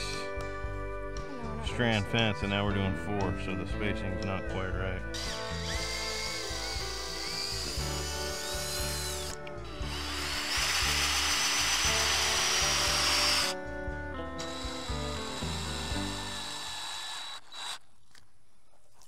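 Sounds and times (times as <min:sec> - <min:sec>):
power drill motor whine: 0:00.0 - 0:00.3, 0:05.2 - 0:13.6, 0:14.4 - 0:17.8.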